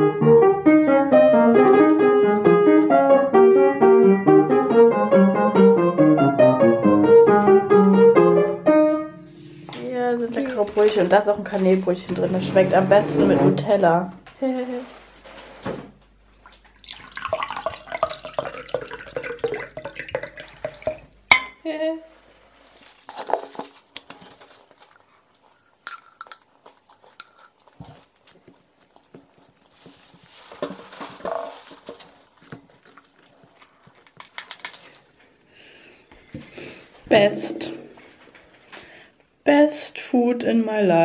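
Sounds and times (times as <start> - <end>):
cutlery and dishes clinking: 25.8 - 30.0, 30.6 - 35.0
knife scraping on bread: 26.9 - 30.4.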